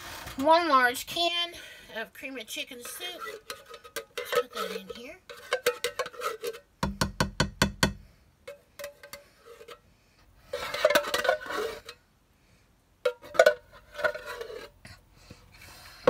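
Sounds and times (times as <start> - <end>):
spoon scraping can and pot: 2.5 - 6.7, 8.5 - 9.8, 10.5 - 12.0, 13.1 - 14.8.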